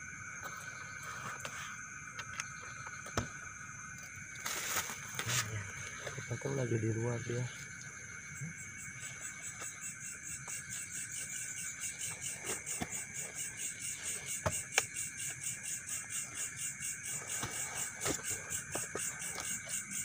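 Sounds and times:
insects chirring: 0.0 - 20.0.

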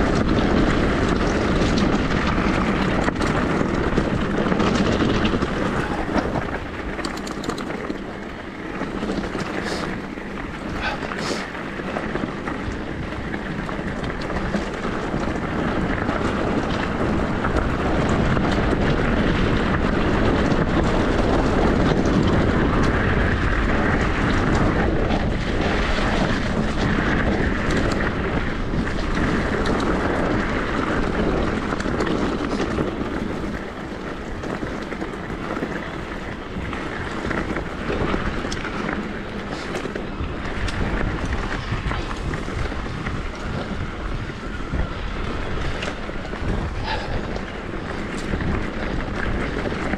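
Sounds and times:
tyres rolling on dirt trail: 0.0 - 49.9
wind rushing over microphone: 0.0 - 49.9
small rattles and knocks: 0.2 - 8.2.

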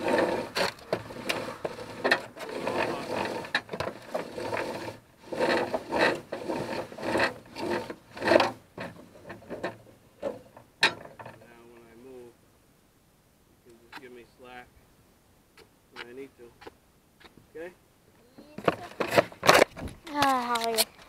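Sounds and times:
rope scraping against metal frame: 0.0 - 11.8, 18.4 - 21.0.

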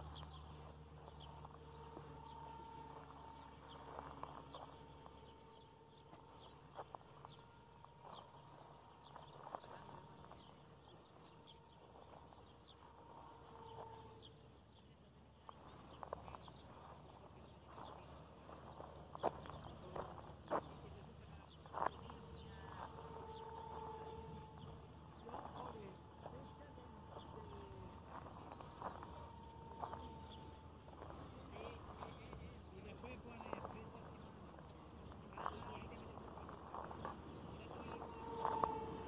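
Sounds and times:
bird chirps: 0.0 - 39.0.

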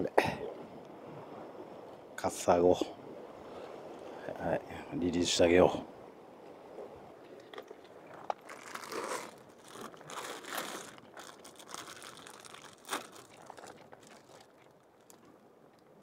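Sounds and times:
plastic bag crinkling: 8.3 - 15.2.

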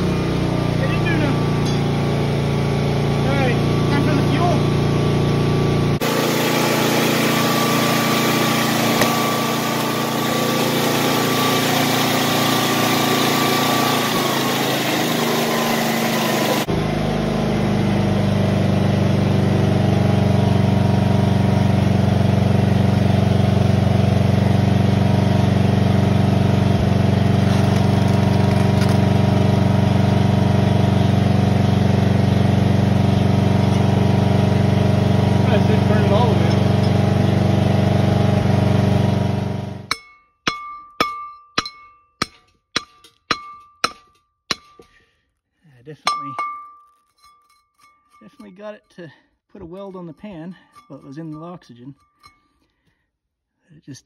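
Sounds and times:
small engine running: 0.0 - 39.9.

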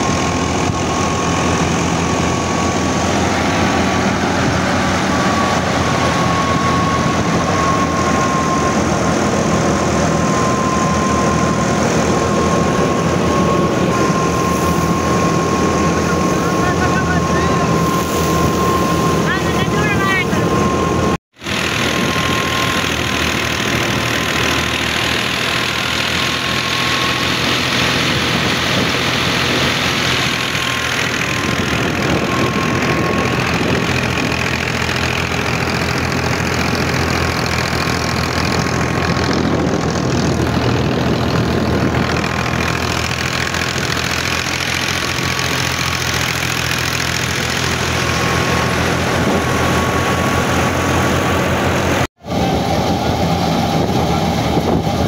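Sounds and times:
diesel tractor running under load: 0.0 - 55.0
thresher whine: 0.0 - 55.0.

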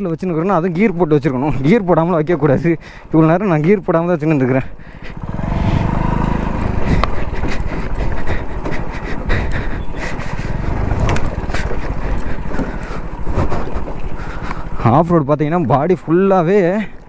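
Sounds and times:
motorcycle engine running: 4.1 - 15.2.

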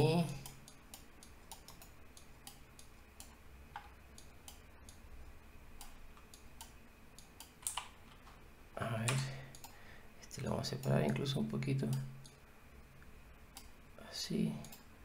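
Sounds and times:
computer mouse clicks: 0.4 - 5.0, 5.8 - 8.4, 9.1 - 9.8, 13.5 - 13.7, 14.6 - 14.9.

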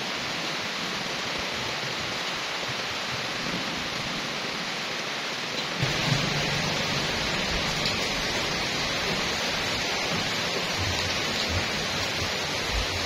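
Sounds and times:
rain falling on trees and pavement: 0.0 - 13.0
low rumble: 5.8 - 12.8.

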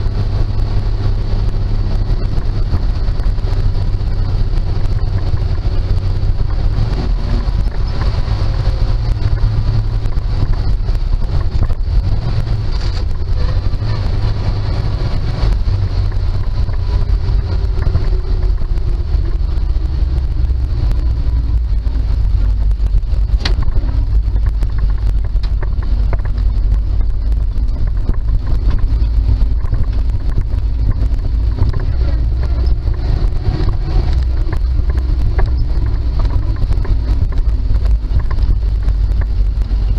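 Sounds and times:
truck engine rumbling: 0.0 - 39.9.

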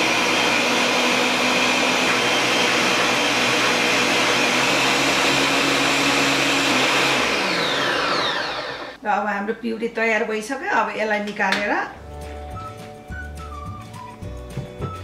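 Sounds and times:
blender running at high speed: 0.0 - 9.0.

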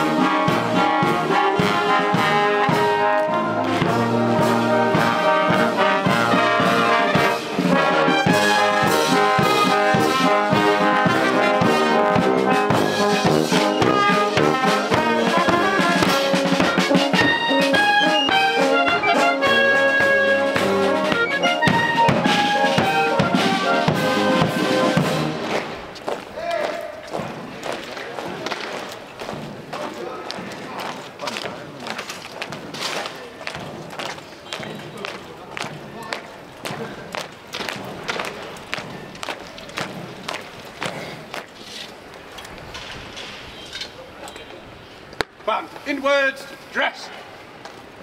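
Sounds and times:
brass melody: 0.0 - 25.9
steady drum beat: 0.0 - 26.4.

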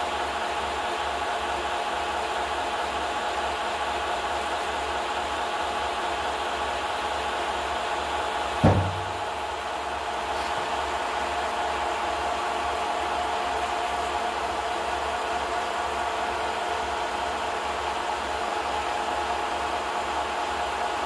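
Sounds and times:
sharp thump: 8.6 - 9.4.

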